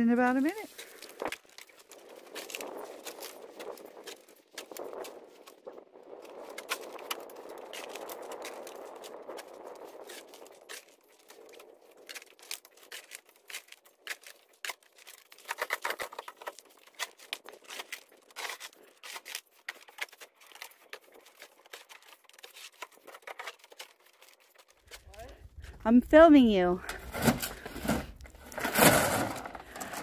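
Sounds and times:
shovel scraping gravel: 26.8s - 30.0s.

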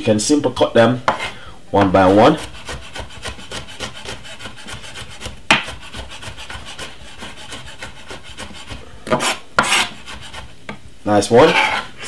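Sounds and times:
knife chopping on wooden board: 1.1s - 10.4s.

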